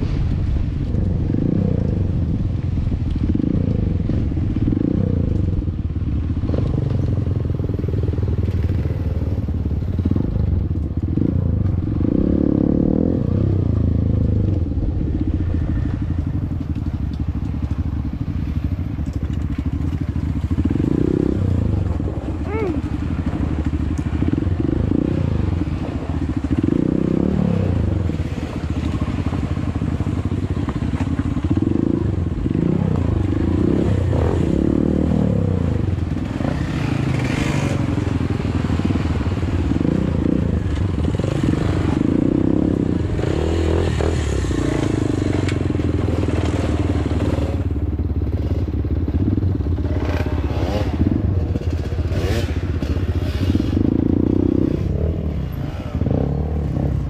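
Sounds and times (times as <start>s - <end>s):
dirt bike engine revving: 19.6s - 30.2s, 31.0s - 47.7s, 48.3s - 57.0s.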